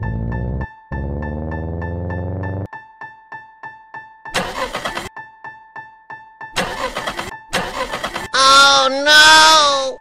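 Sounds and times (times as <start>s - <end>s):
engine cranking: 4.4s - 5.1s, 6.6s - 8.4s.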